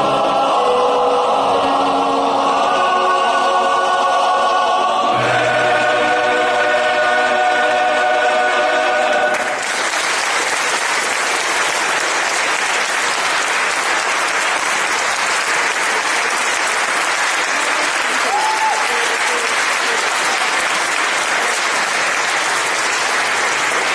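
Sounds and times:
male voice choir singing: 0.0 - 9.6
audience applause: 9.0 - 23.9.

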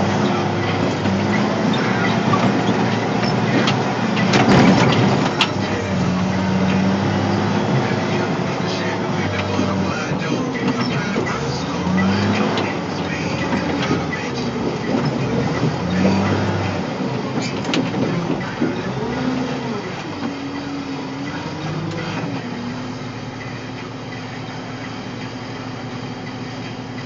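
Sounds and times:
diesel engine revving: 0.0 - 27.0
machine rattles and clanks: 0.7 - 5.8.

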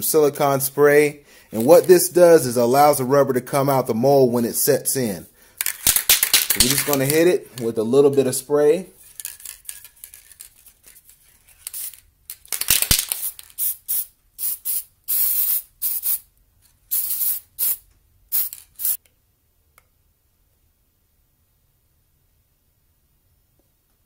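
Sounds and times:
aerosol spray hissing bursts: 13.2 - 16.2, 16.9 - 19.0.

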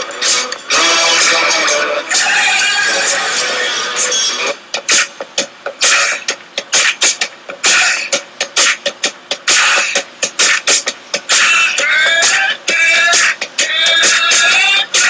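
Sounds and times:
vocal line: 0.0 - 5.1, 11.3 - 15.0
drum and percussion beat: 0.0 - 15.0.

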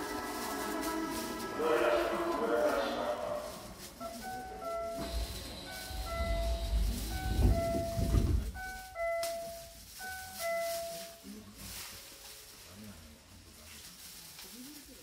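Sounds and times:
train doors sliding shut: 3.6 - 9.6
doors closing thud: 6.2 - 8.7.

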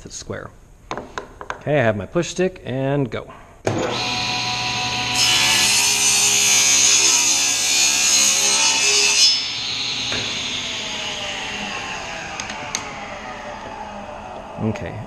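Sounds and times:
saw motor hum: 3.7 - 14.7
table saw cutting wood: 3.7 - 14.7.

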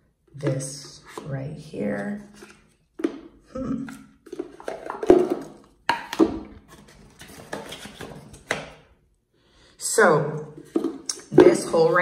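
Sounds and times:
plastic parts knocking and clicking: 4.2 - 8.8.

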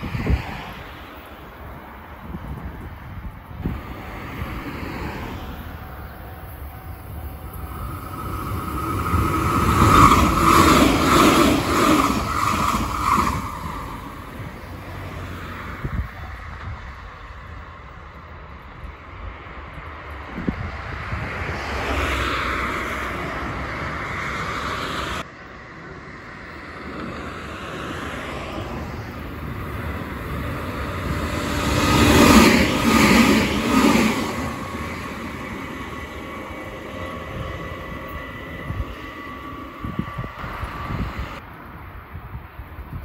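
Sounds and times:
cars passing: 0.0 - 43.0.

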